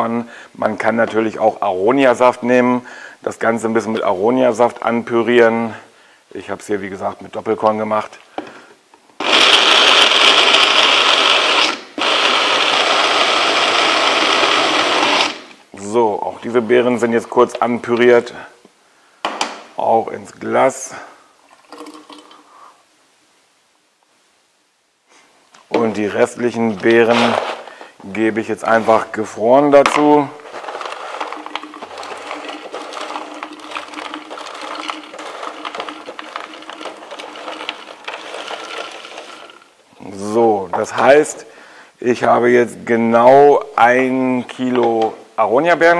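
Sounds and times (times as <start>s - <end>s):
blender motor chopping berries: 9.2s - 15.6s, 29.9s - 39.7s.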